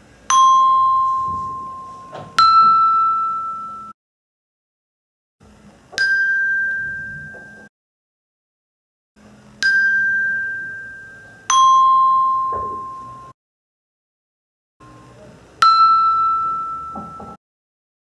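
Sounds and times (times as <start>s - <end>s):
tuned bells ringing: 0.3s - 4.0s, 6.0s - 7.7s, 9.6s - 13.4s, 14.8s - 17.4s.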